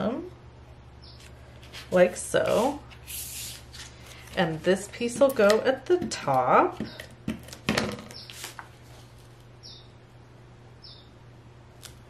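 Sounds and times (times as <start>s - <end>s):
bird chirping: 1.0s - 1.2s, 8.1s - 8.4s, 9.6s - 10.0s, 10.8s - 11.2s
card pieces knocking and rustling: 4.2s - 8.7s.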